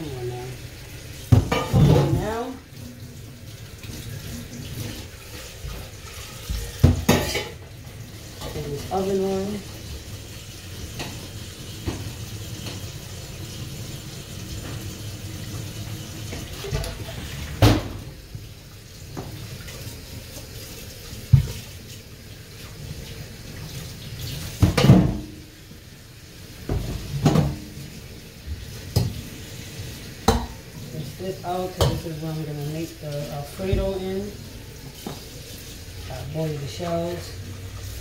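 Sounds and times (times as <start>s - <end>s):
metal pot clanking against sink: 1.3s - 2.4s, 6.7s - 7.6s
tap running into sink: 3.8s - 7.4s, 10.9s - 13.0s, 21.3s - 21.7s, 24.3s - 25.3s, 26.6s - 27.8s, 28.5s - 29.3s, 30.2s - 30.6s.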